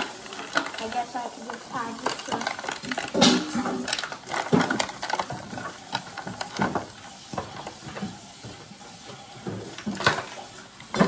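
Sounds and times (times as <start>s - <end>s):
plastic packaging crackling: 0.0s - 7.8s.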